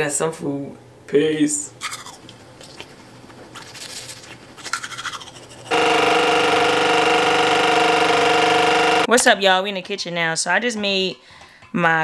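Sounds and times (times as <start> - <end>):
toothbrush scrubbing teeth: 3.5 - 5.7
electric toothbrush buzzing: 5.6 - 9.1.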